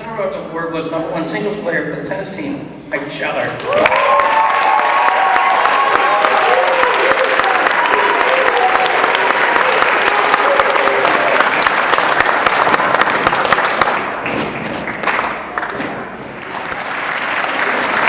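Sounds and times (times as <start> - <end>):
audience applauding: 3.6 - 18.0.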